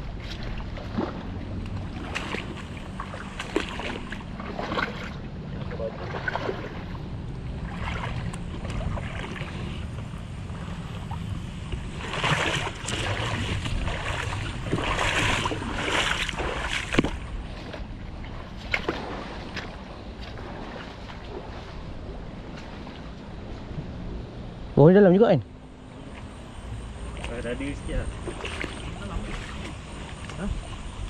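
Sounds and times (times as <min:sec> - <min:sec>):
water sloshing and splashing: 0:00.0 - 0:24.6, 0:25.6 - 0:31.0
wind rumble on microphone: 0:00.0 - 0:24.8, 0:25.8 - 0:31.0.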